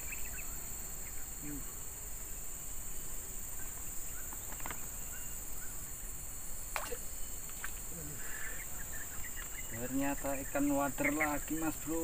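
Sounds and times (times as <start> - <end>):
insect chorus: 0.0 - 12.0.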